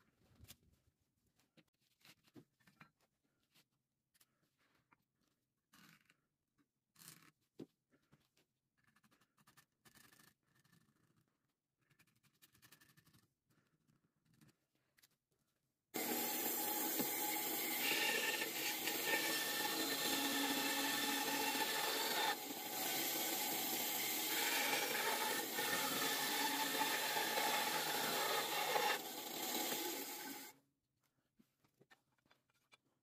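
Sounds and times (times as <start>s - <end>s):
band saw cutting wood: 16.0s - 30.5s.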